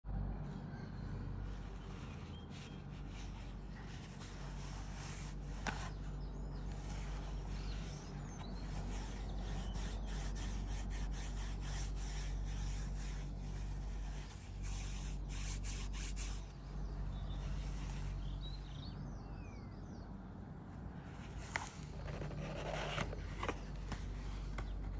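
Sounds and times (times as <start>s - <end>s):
steady low hum: 0.1s - 24.9s
gloved hands rubbing cardboard box: 1.4s - 18.7s.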